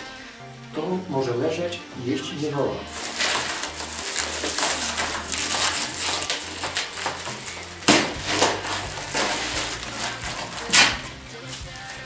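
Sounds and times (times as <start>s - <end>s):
plastic wrapping crinkling: 2.8s - 12.0s
cardboard box scraping and knocking: 2.9s - 11.2s.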